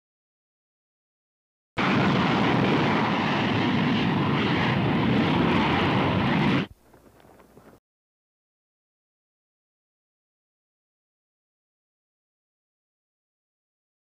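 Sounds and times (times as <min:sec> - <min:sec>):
jet engines roaring: 0:01.8 - 0:07.2.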